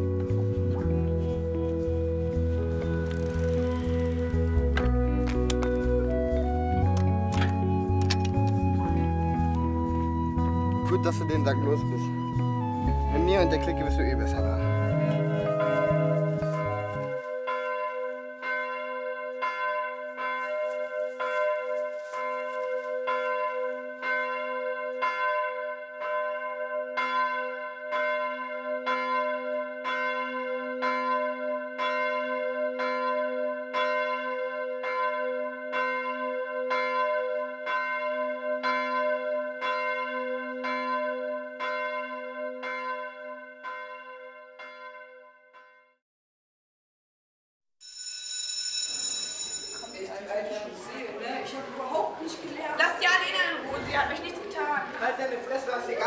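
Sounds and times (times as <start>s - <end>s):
church bell tolling: 13.6s - 46.0s, 47.9s - 50.3s.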